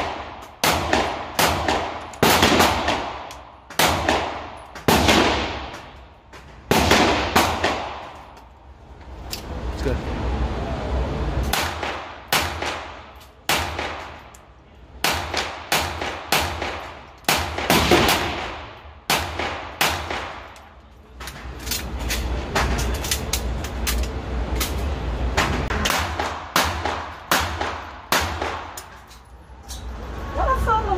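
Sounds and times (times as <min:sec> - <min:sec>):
pistol shots echoing indoors: 0:00.0 - 0:06.0, 0:06.7 - 0:08.2.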